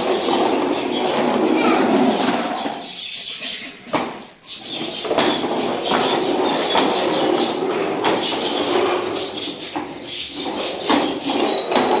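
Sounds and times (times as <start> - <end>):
plastic wheels rolling on tiles: 0.0 - 3.2, 3.9 - 12.0.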